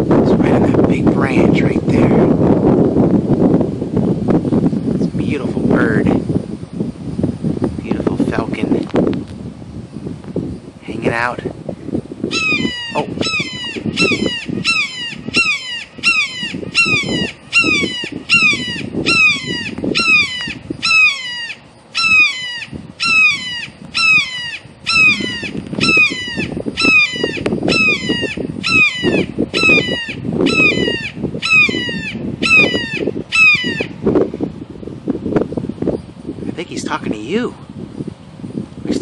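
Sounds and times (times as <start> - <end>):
bird of prey screaming: 12.3 - 34.0.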